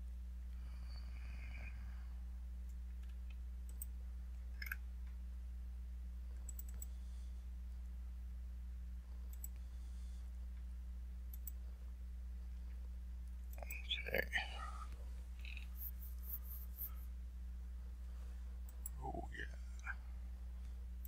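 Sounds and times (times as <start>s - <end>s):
low electrical hum: 0.0s - 21.0s
computer mouse clicking: 2.7s - 3.9s, 4.6s - 4.8s, 6.4s - 7.0s, 9.3s - 9.7s, 11.3s - 11.6s.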